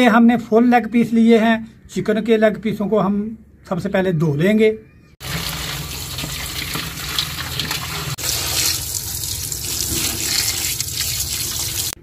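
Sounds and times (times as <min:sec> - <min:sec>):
chicken rinsed by hand: 0:05.2 - 0:12.0
water running into a steel bowl: 0:05.2 - 0:12.0.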